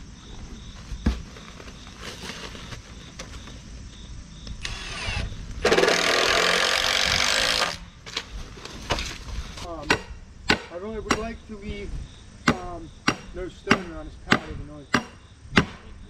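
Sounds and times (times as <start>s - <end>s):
cordless power drill running: 4.6s - 7.8s
sharp knocks: 9.8s - 11.3s.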